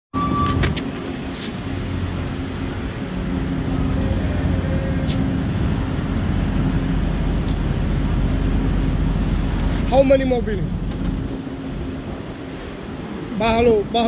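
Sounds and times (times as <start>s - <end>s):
faint whine: 0.2s - 13.8s
low machinery hum: 0.2s - 14.0s.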